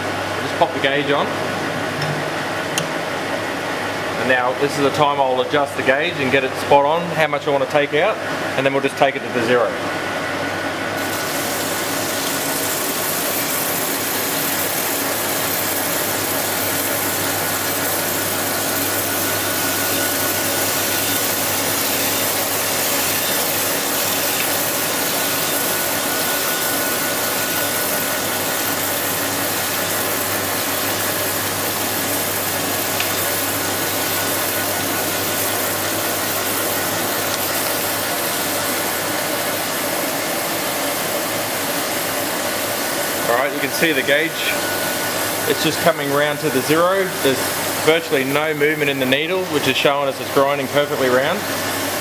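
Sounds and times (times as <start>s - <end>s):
low machine hum: 0.0s - 52.0s
grinding wheel hiss: 11.0s - 49.6s.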